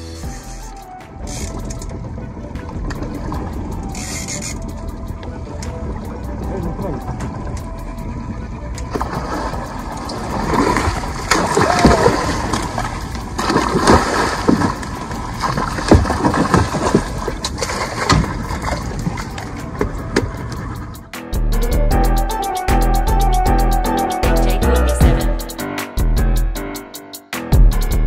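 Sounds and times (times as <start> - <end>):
music: 0.0 - 28.0
fish thrashing in water: 8.9 - 19.6
sharp knocks on boat: 15.5 - 17.2, 18.0 - 18.8.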